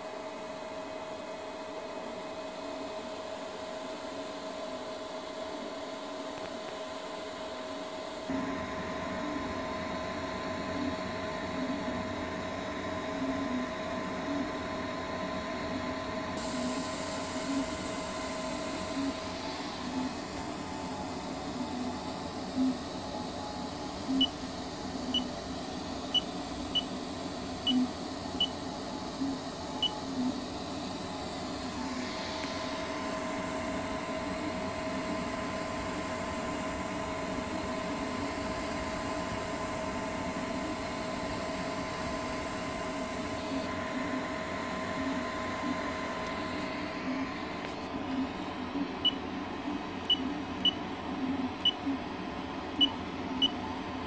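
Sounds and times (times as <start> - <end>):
printer whining tones: 8.3 - 47.8
fan-like hiss: 15.8 - 48.6.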